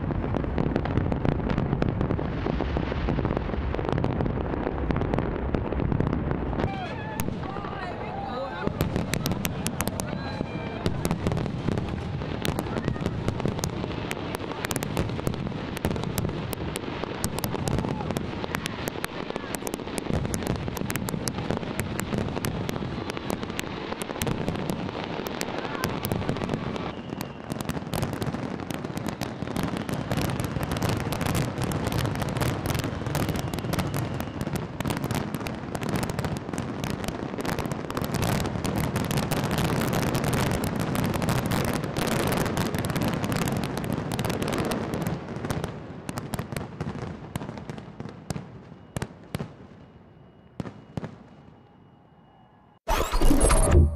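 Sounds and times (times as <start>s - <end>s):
fireworks bangs and crackles: 0.0s - 51.7s
low rumble: 52.9s - 53.9s.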